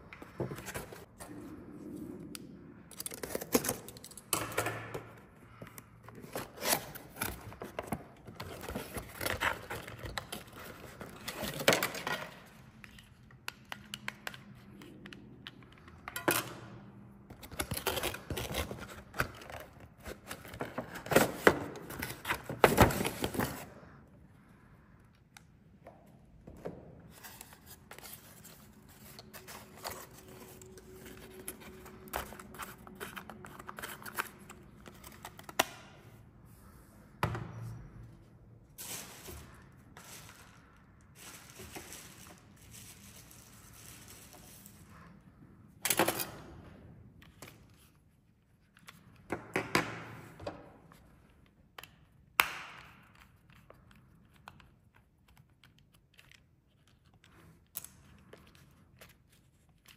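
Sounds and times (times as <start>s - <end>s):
cardboard packaging handled: 38.8s - 44.8s.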